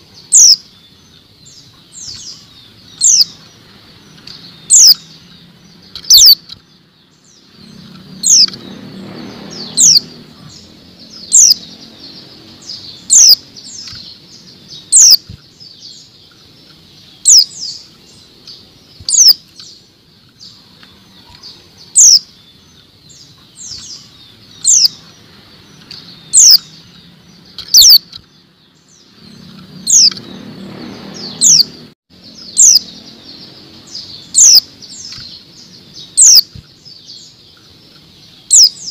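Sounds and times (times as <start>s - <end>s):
bird giving high calls: 0.0s - 0.8s, 1.8s - 3.5s, 4.5s - 5.3s, 5.9s - 6.6s, 7.7s - 8.7s, 9.5s - 19.8s, 20.5s - 26.9s, 27.5s - 28.2s, 31.2s - 38.9s.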